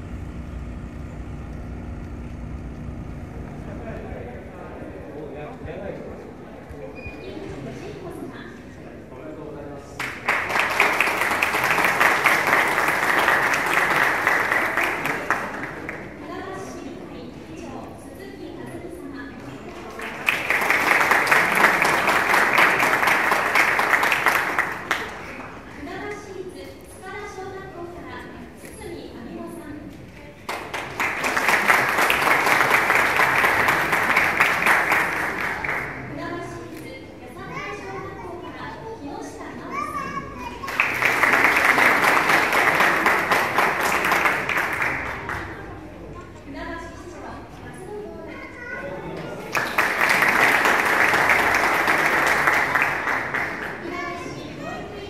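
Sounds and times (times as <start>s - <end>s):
audience applauding: 10.0s - 16.2s, 19.5s - 25.7s, 30.4s - 36.1s, 40.6s - 45.8s, 49.3s - 54.4s.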